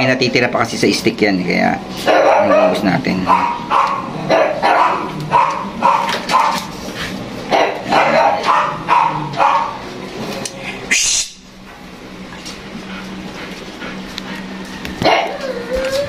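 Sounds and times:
dog barking yelps: 0:02.1 - 0:06.7, 0:07.5 - 0:09.8, 0:15.0 - 0:16.0.

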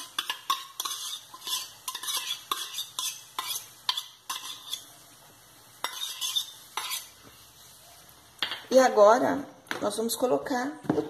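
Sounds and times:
metal spoon scraping and clinking bowls: 0:00.0 - 0:04.8, 0:05.8 - 0:07.2.

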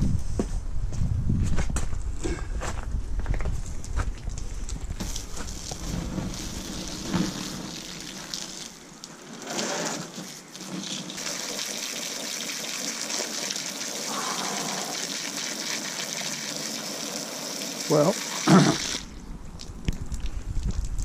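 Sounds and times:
hose water gushing: 0:05.0 - 0:19.2.

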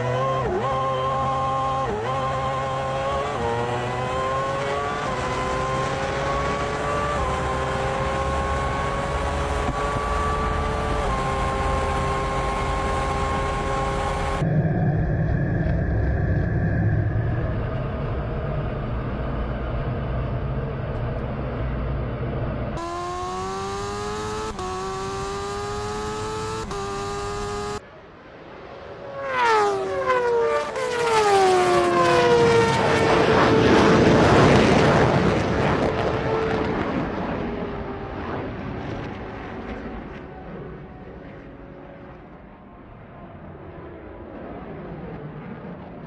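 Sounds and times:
race cars passing by: 0:00.0 - 0:14.5, 0:17.0 - 0:44.0
motorcycle racing past: 0:00.0 - 0:14.6, 0:22.8 - 0:27.8, 0:29.0 - 0:40.4
engine accelerating hard: 0:00.0 - 0:27.8, 0:29.0 - 0:42.3
jet engine rumble: 0:14.4 - 0:22.8, 0:31.5 - 0:46.0.

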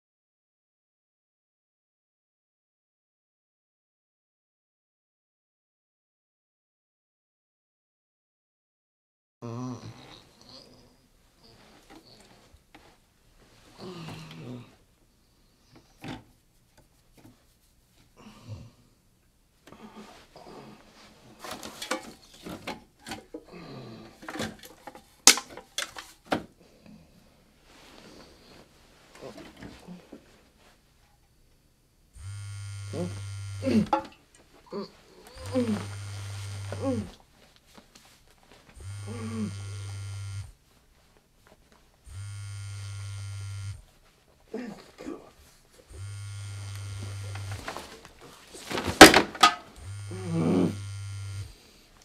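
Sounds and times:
man groaning: 0:09.4 - 0:10.9, 0:13.8 - 0:14.8, 0:32.9 - 0:34.0, 0:34.7 - 0:37.2, 0:38.9 - 0:40.0, 0:44.5 - 0:45.4, 0:50.0 - 0:51.2
phone vibrating in pocket: 0:32.2 - 0:34.0, 0:35.3 - 0:37.1, 0:38.7 - 0:40.6, 0:42.1 - 0:43.9, 0:45.9 - 0:48.0, 0:48.8 - 0:51.7.

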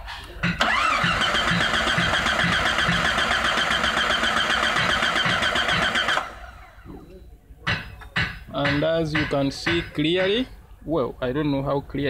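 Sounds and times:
engine cranking without starting: 0:00.4 - 0:06.8.

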